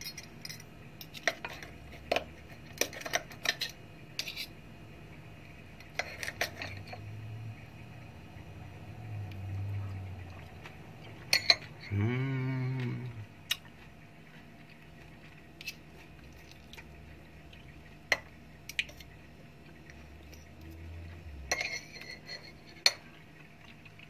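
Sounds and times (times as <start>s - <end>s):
low drawn-out vocal sound: 11.8s - 13.4s
cutlery clinking on a plate: 21.5s - 23.0s.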